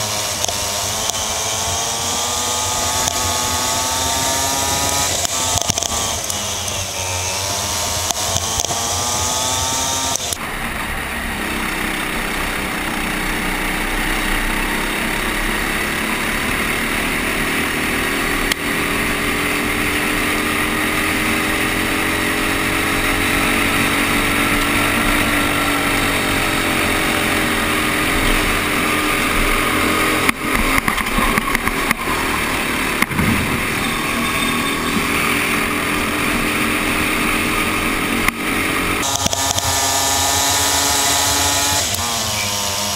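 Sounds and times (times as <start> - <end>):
kart engine revving: 0.0 - 42.9
sharp knocks: 33.0 - 33.9.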